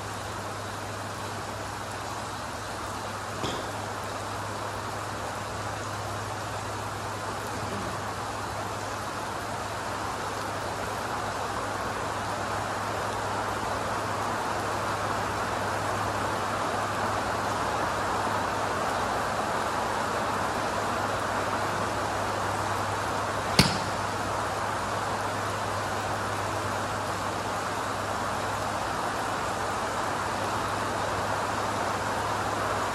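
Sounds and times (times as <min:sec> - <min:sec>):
steady rain hiss: 0:00.0 - 0:32.9
golf club striking ball: 0:03.4 - 0:03.8, 0:23.6 - 0:24.4
low steady hum: 0:23.0 - 0:26.9.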